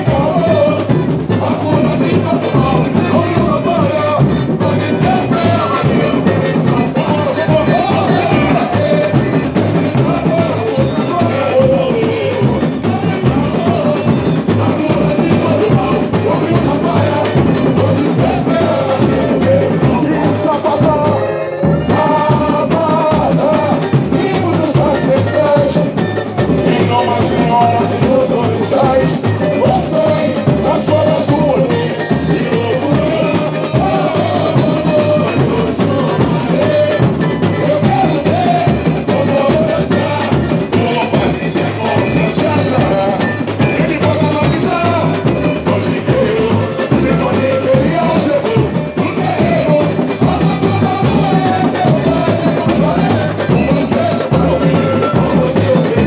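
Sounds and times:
percussion section drumming: 0.0 - 56.0
person singing through sound system: 0.0 - 56.0.

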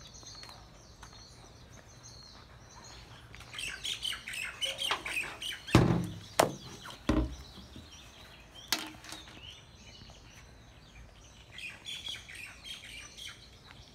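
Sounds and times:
small birds chirping: 0.0 - 13.9
sharp thumps and knocks: 5.7 - 7.8.

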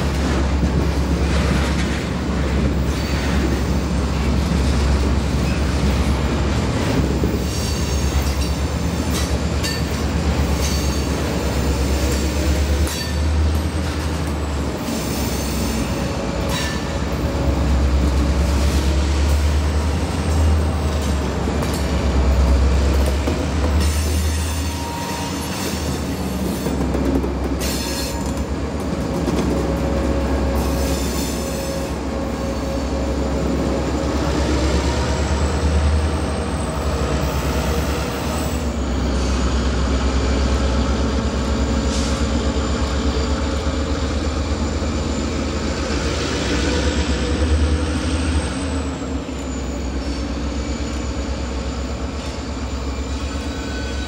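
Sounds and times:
freight train rumbling past: 0.0 - 54.0
train wheels squealing: 7.2 - 17.1, 23.7 - 26.8, 27.6 - 28.4, 30.2 - 39.6, 41.1 - 54.0.

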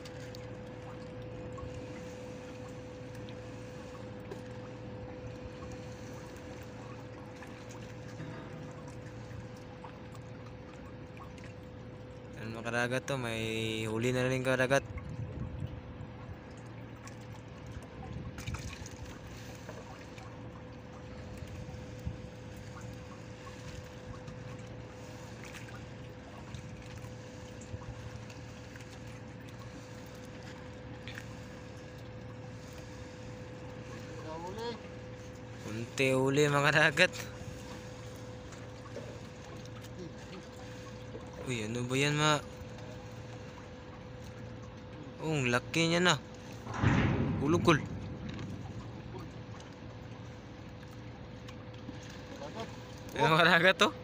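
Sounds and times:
small splashes: 0.0 - 12.4, 14.8 - 54.0
steady hum: 0.0 - 54.0
water dripping: 42.6 - 53.2.

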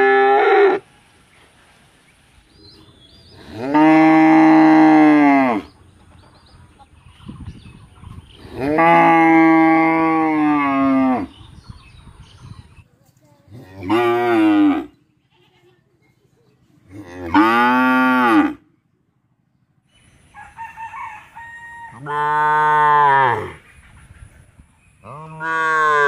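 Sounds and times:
cows mooing: 3.4 - 5.7, 8.4 - 11.3, 13.7 - 15.0, 16.9 - 18.6, 21.9 - 23.6, 25.1 - 26.0
calf mooing: 17.0 - 18.6.

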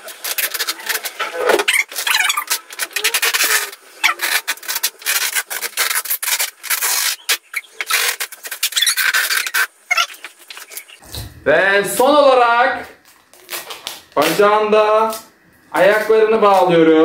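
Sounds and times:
adhesive tape pulled off roll: 0.0 - 10.9.

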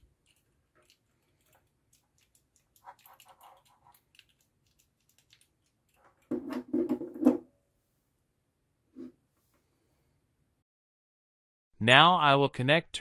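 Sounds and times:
knocks and scrapes on desk: 6.3 - 7.5, 8.9 - 9.2.

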